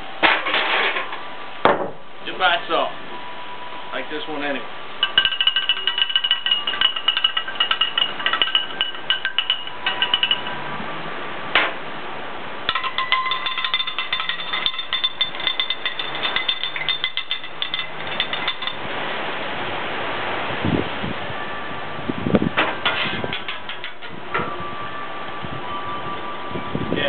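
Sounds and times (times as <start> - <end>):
metal spatula clanging on griddle: 5.0 - 10.6, 12.7 - 18.8.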